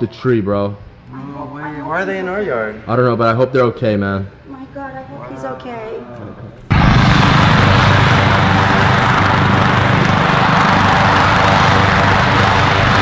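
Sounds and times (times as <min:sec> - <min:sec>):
helicopter rotor and engine: 0:06.7 - 0:13.0.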